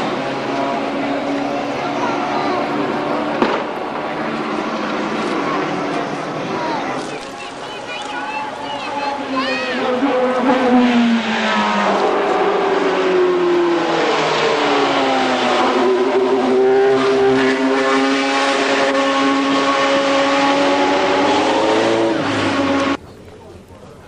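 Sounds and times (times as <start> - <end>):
race cars passing: 0.0 - 23.3.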